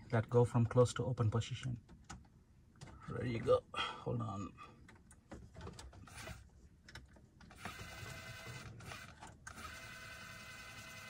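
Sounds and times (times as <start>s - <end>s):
small motor whirring: 7.6s - 11.0s.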